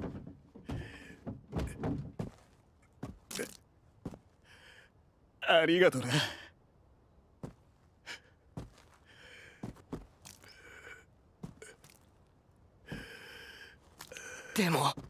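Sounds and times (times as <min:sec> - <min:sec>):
man gasping breaths: 0:09.0 - 0:09.8.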